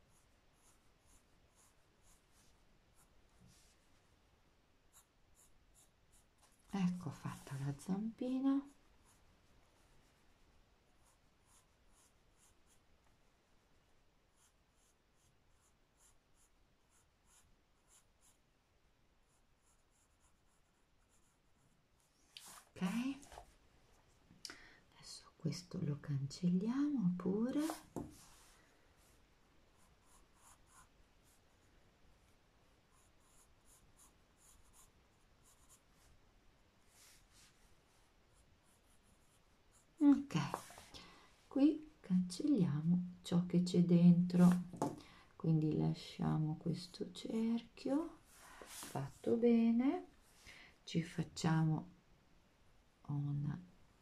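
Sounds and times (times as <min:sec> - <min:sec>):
pencil scratching on paper: 0:00.0 - 0:03.1, 0:04.9 - 0:07.9, 0:11.0 - 0:12.8, 0:14.3 - 0:18.4, 0:19.2 - 0:23.4, 0:27.5 - 0:28.5, 0:29.7 - 0:31.6, 0:32.9 - 0:36.1, 0:38.3 - 0:40.8.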